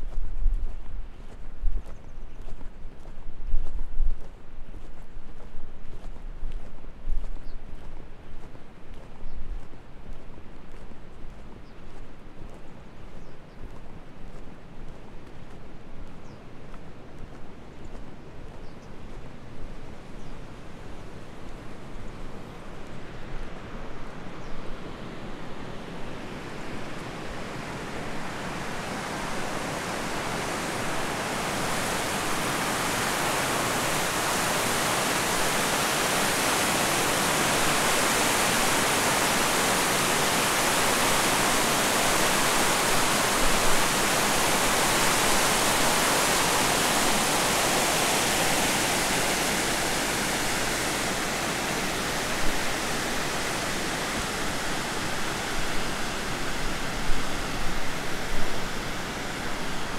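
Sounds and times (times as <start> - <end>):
river water rushing over rocks: 25.6 - 59.9.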